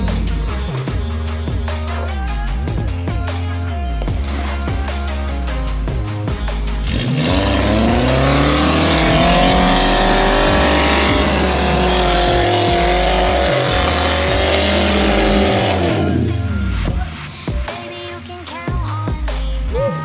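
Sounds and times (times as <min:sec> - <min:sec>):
engine revving hard under load: 0:06.5 - 0:17.2.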